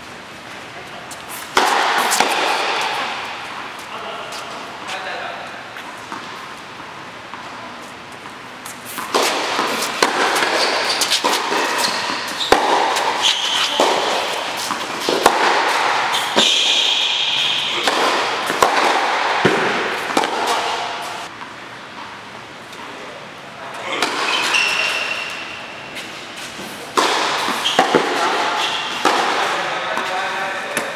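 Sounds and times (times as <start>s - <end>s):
racket hitting tennis ball: 0.5s - 4.6s, 5.8s - 22.1s, 23.9s - 30.9s
ball bouncing: 1.5s - 3.8s, 7.3s - 22.1s, 27.0s - 30.9s
shoes squeaking on court: 5.7s - 22.1s, 23.8s - 30.8s.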